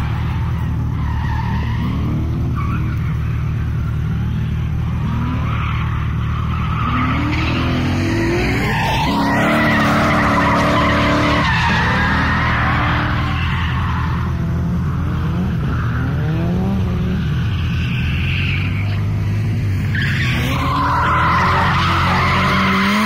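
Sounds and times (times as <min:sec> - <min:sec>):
tyres squealing and skidding: 0:00.0 - 0:23.0
car engine revving hard: 0:06.8 - 0:13.3, 0:14.4 - 0:17.4, 0:20.3 - 0:23.0.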